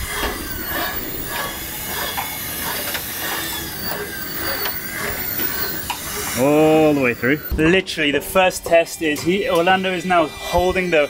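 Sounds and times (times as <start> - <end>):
wire sliding through wood: 0.0 - 7.6.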